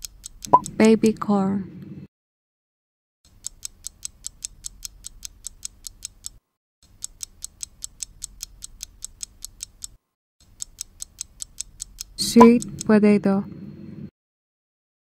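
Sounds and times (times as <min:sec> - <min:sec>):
fast clock ticking: 0:00.0 - 0:01.0, 0:03.3 - 0:13.0.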